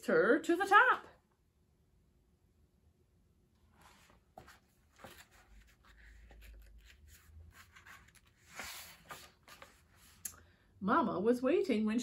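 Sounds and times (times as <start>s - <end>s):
book page turning: 3.8s - 10.2s
paper rustle: 3.8s - 10.2s.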